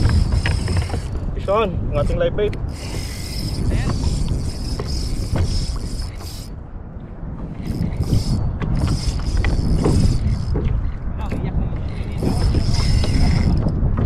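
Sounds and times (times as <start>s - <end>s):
fishing reel drag buzzing: 0.0s - 1.3s, 2.5s - 6.6s, 7.5s - 11.0s, 11.9s - 13.7s
low wind: 0.0s - 14.0s
water rumble: 0.0s - 14.0s.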